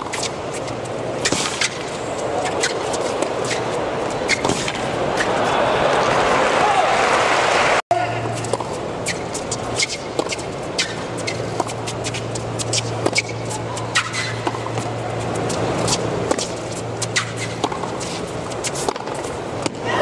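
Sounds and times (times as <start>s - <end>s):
steady low hum: 0.0s - 6.6s, 7.9s - 20.0s
crowd murmuring: 2.2s - 8.2s.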